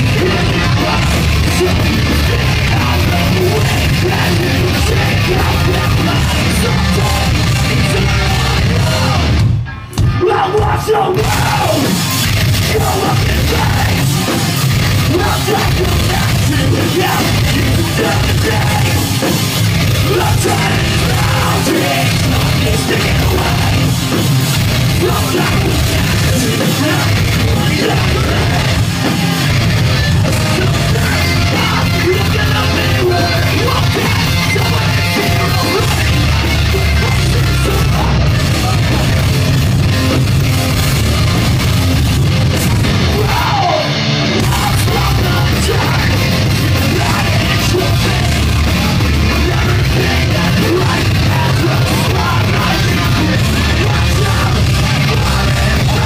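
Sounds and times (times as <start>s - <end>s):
shouted vocals: 0.0s - 9.4s, 10.1s - 24.1s, 42.9s - 56.0s
live pop-punk band playing: 0.0s - 56.0s.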